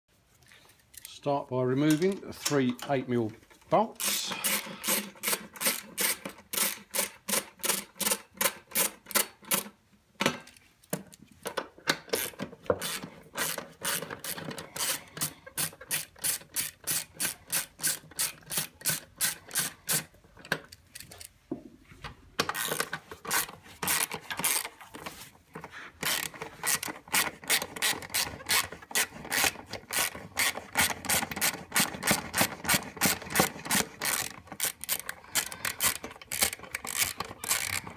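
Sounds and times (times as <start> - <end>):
ratchet wrench clicking: 12.1 - 20.1, 22.5 - 24.7, 26.0 - 37.9.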